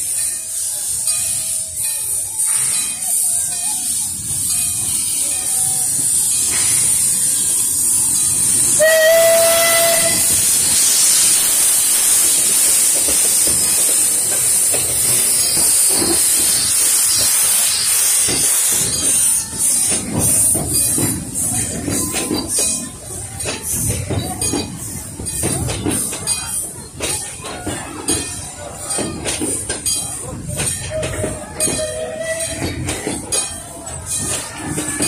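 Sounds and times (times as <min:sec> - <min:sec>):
steam hissing: 0:00.0 - 0:35.0
steam whistle blast: 0:08.6 - 0:11.3.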